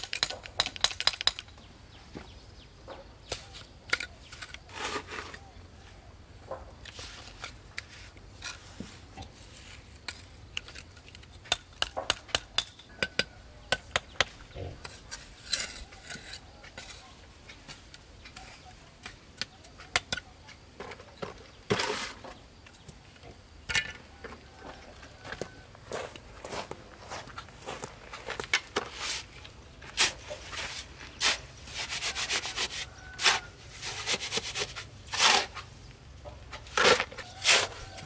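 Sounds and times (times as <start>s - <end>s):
bricks and trowel knocking: 0.0s - 1.6s, 10.6s - 18.4s
trowel rasping scrape: 4.3s - 5.4s, 14.8s - 17.1s, 29.9s - 35.7s, 36.6s - 38.0s.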